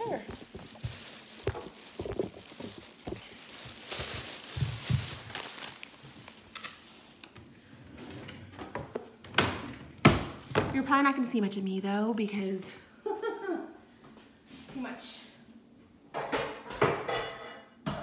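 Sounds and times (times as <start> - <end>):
plastic bags rustling: 0.0 - 7.4.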